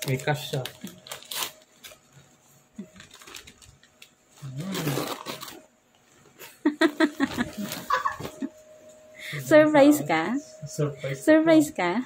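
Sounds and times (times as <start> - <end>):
wrapping paper rustling: 0.0 - 5.7.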